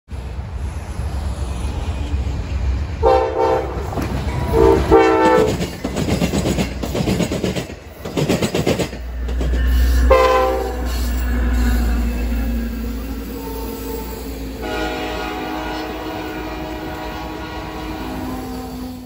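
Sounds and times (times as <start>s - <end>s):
train horn blasts: 3.0s - 5.6s, 10.0s - 11.0s, 13.3s - 19.0s
train wheels clattering: 3.1s - 14.9s.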